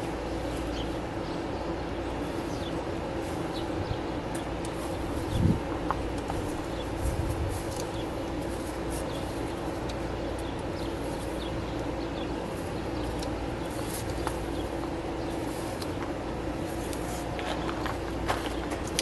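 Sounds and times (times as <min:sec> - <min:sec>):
steady mechanical hum: 0:00.0 - 0:19.0
hoses and fittings clicking: 0:09.8 - 0:10.0, 0:13.1 - 0:14.4, 0:15.7 - 0:16.2, 0:16.9 - 0:19.0.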